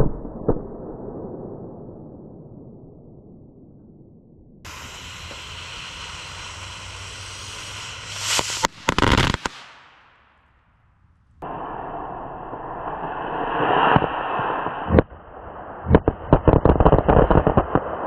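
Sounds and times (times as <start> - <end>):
firecracker fuse hissing: 4.7 - 10.4
firecracker bangs: 4.7 - 10.6, 11.4 - 18.0.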